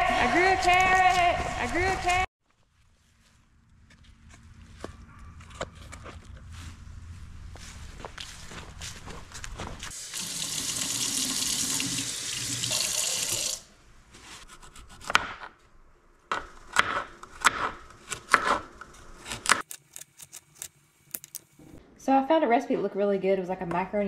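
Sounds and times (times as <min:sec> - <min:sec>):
kitchen tap running into sink: 0:10.0 - 0:13.7.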